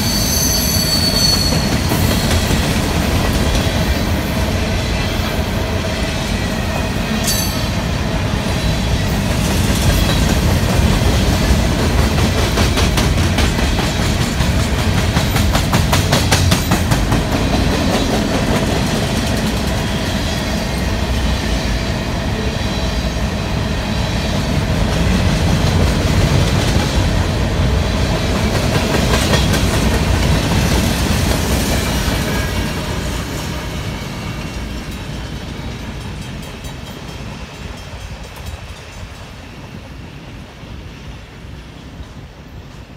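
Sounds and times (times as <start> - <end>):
freight train rolling past: 0.0 - 42.9
wheels clickety-clack: 9.3 - 20.1, 28.3 - 32.7, 34.5 - 39.3.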